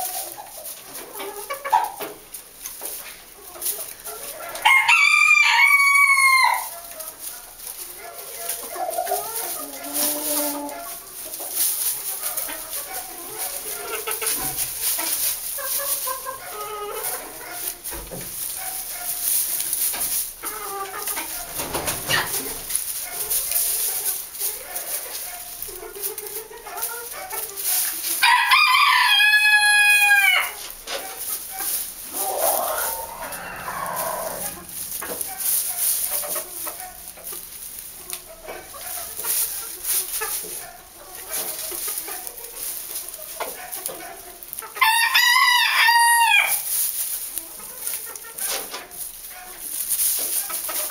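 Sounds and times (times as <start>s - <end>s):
chickens clucking softly: 0.0s - 45.1s
rooster crowing: 4.6s - 6.7s, 28.2s - 30.5s, 32.1s - 34.8s, 44.8s - 46.6s.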